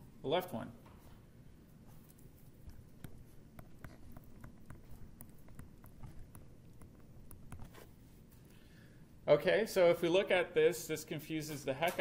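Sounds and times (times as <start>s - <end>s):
stylus tapping on tablet screen: 2.6s - 7.9s.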